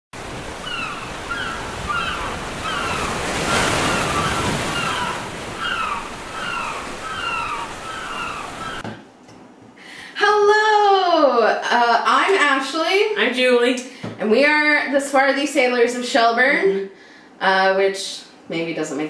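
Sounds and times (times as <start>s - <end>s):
ocean surf breaking: 0.1s - 8.8s.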